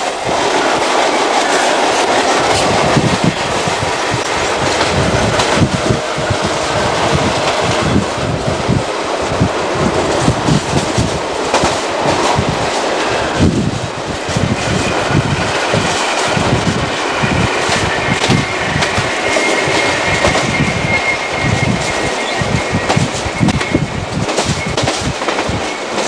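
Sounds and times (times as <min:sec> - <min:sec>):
passing train: 0:00.0 - 0:26.0
train wheel and rail noise: 0:00.0 - 0:26.0.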